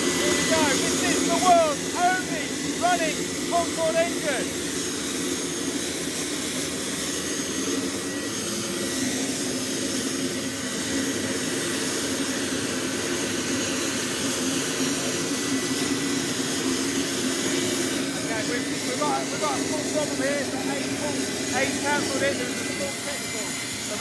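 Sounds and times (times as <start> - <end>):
auxiliary power unit jet roar: 0.0 - 24.0
faint high whine: 14.7 - 24.0.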